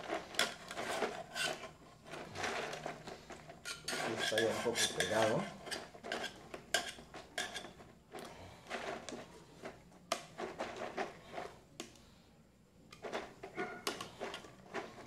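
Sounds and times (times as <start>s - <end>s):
utensil scraping inside container: 0.0s - 9.7s.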